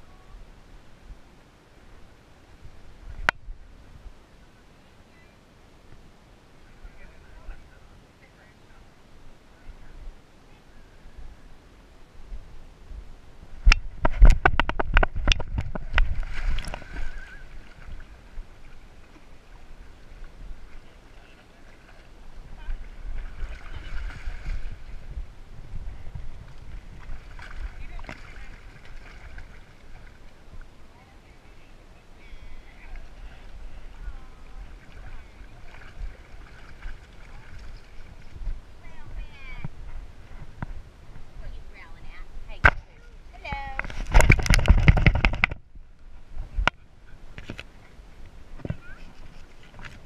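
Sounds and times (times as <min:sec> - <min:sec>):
water sloshing and rumbling: 0:12.2 - 0:50.0
dog paws splashing in water: 0:27.0 - 0:30.4, 0:34.6 - 0:38.4.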